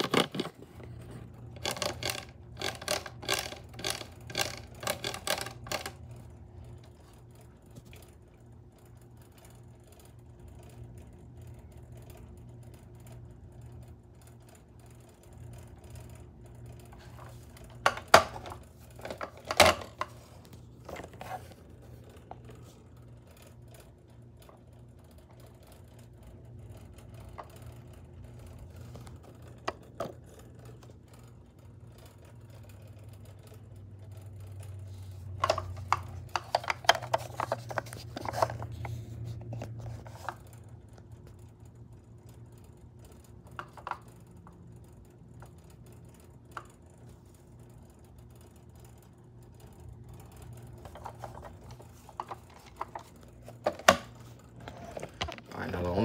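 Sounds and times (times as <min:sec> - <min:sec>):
plastic clicks and knocks: 0:00.0 - 0:00.6, 0:17.8 - 0:20.2, 0:35.4 - 0:38.7.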